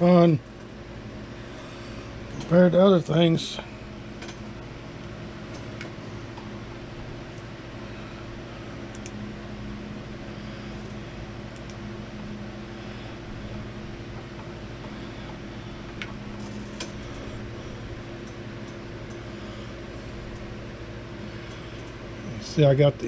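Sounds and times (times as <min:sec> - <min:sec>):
mechanical hum: 0:00.0 - 0:23.0
faint small clicks: 0:08.9 - 0:09.2, 0:11.5 - 0:11.8.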